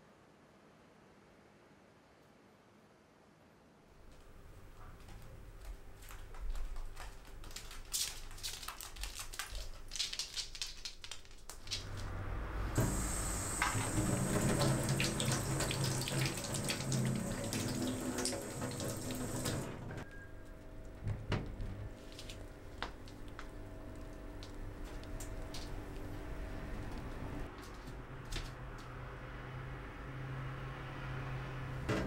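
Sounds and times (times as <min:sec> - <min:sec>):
tap running into steel sink: 0:12.8 - 0:19.9.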